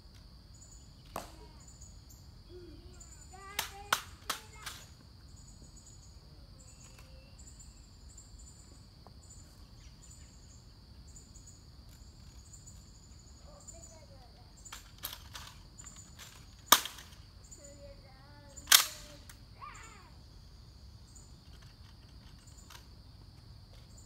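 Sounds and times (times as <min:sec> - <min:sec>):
insects buzzing and chirping: 0:00.0 - 0:24.0
sharp metallic rifle clicks: 0:18.6 - 0:19.3.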